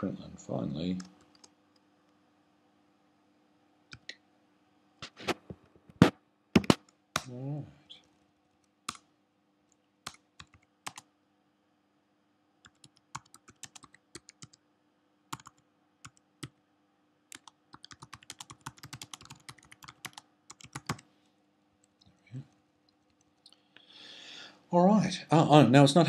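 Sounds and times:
typing on computer keyboard: 0:10.0 - 0:11.1, 0:12.6 - 0:14.6, 0:15.3 - 0:16.6, 0:17.3 - 0:21.0.

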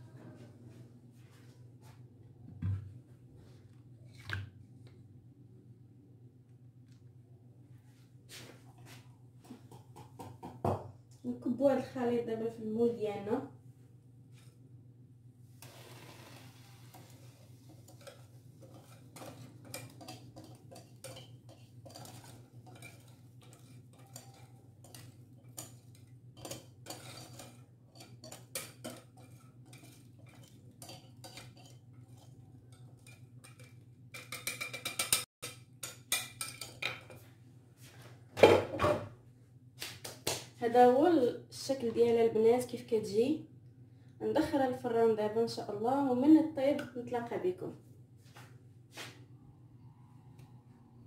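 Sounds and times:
utensil scraping a mixing bowl: 0:15.6 - 0:25.0.

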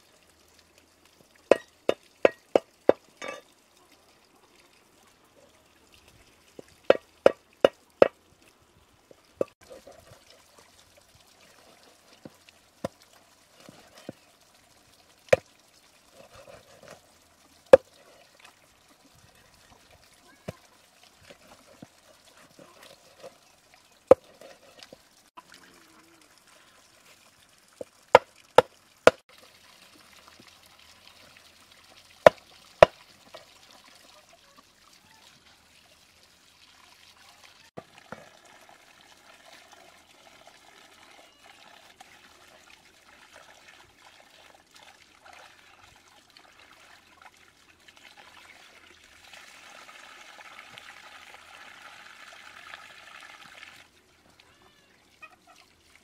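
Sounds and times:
water trickling onto stones: 0:00.0 - 0:56.0
hands washing pot under water: 0:01.4 - 0:03.5, 0:06.5 - 0:08.2, 0:09.1 - 0:10.6, 0:16.1 - 0:19.2, 0:19.8 - 0:25.6, 0:27.8 - 0:30.5.

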